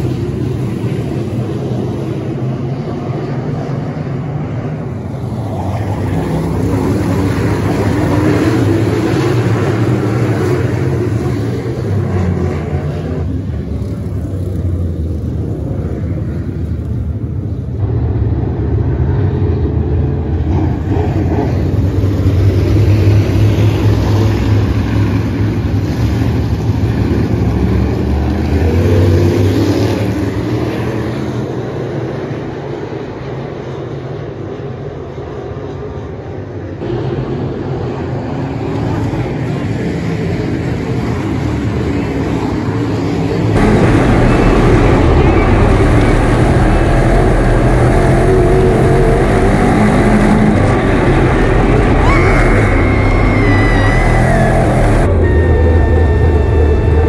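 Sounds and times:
race car engines droning: 0:00.0 - 0:57.0.

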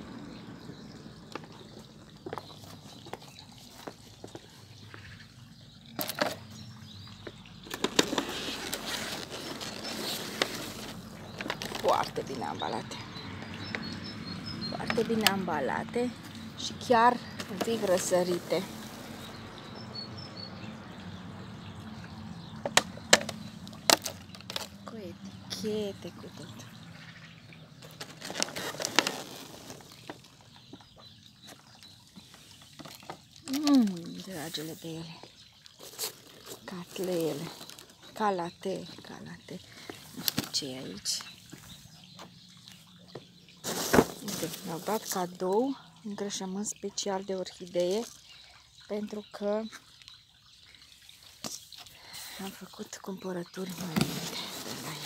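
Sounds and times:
plastic and packing peanuts rustling: 0:07.7 - 0:12.4, 0:27.8 - 0:30.2, 0:35.8 - 0:38.0, 0:43.6 - 0:45.4, 0:53.6 - 0:55.0.

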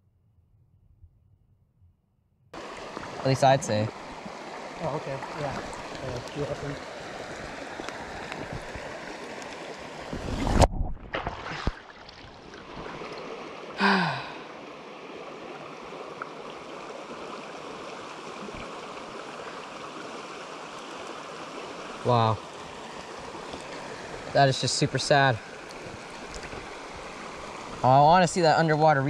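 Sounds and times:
creek water running: 0:02.6 - 0:29.0
net splashing in water: 0:10.4 - 0:13.2
falling vocal groan: 0:13.8 - 0:14.4.

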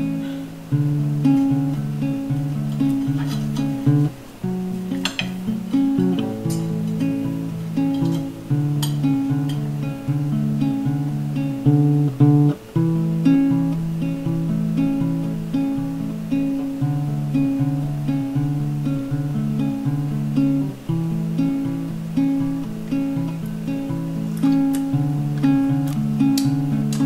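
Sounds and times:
acoustic guitar plucking: 0:00.0 - 0:27.0.

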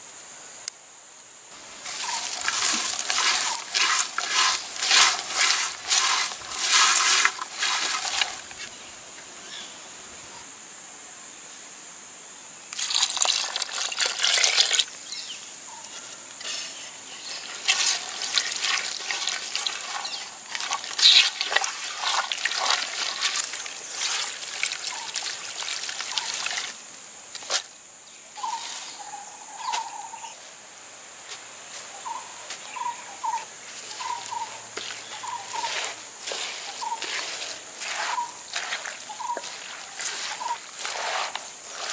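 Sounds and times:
dry crunchy rustling of vegetables: 0:01.6 - 0:08.8, 0:15.8 - 0:27.7, 0:33.3 - 0:41.9
wet splashy mixing by hand: 0:01.8 - 0:08.7, 0:12.8 - 0:14.9, 0:17.2 - 0:26.8, 0:34.8 - 0:41.9.

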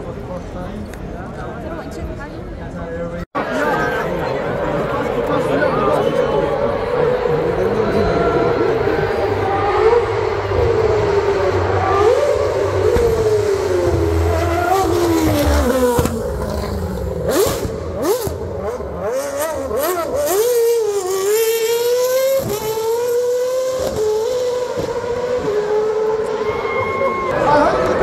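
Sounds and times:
rally car engine revving: 0:06.2 - 0:28.0.

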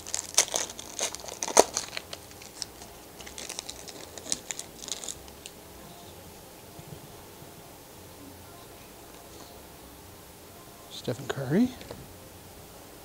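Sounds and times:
foil wrapper crinkling: 0:00.0 - 0:06.0.

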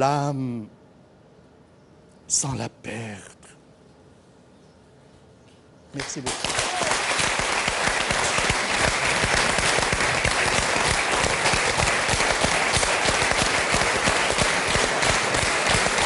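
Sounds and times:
audience applauding: 0:06.0 - 0:16.0.

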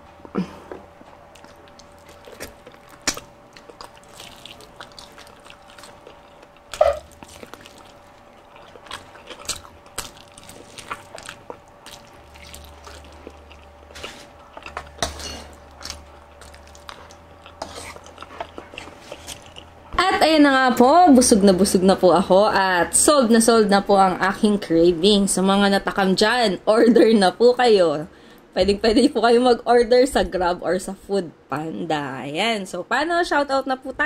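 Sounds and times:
person chewing crispy food: 0:01.3 - 0:19.9.

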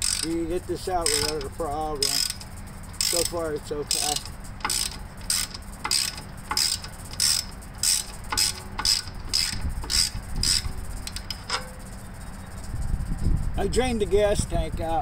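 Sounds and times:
socket ratchet clicking: 0:00.0 - 0:11.9.

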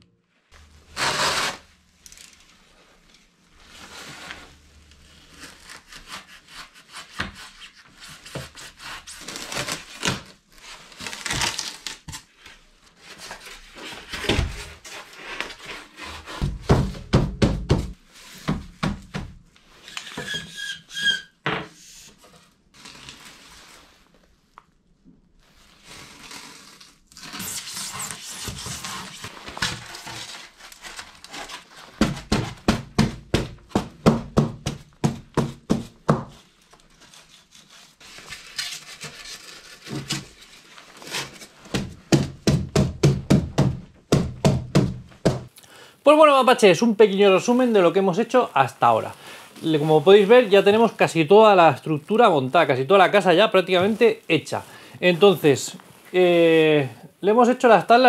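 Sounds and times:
rubbing or sawing on wood: 0:14.8 - 0:16.6
wooden boards knocking and scraping: 0:16.3 - 0:19.4.

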